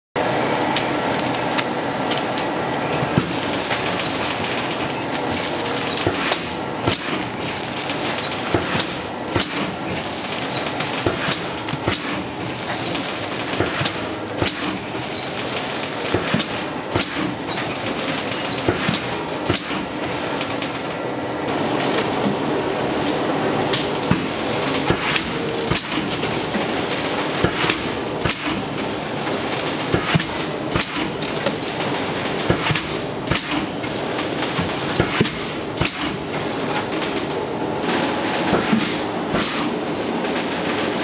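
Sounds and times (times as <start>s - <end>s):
film sealer machine running: 0.2s - 41.0s
machine clicks and knocks: 0.6s - 22.4s, 23.7s - 41.0s.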